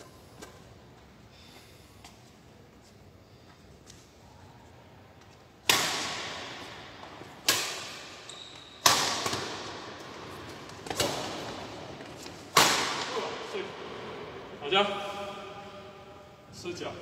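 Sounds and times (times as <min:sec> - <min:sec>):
rackets hitting shuttlecock: 0:05.6 - 0:14.0.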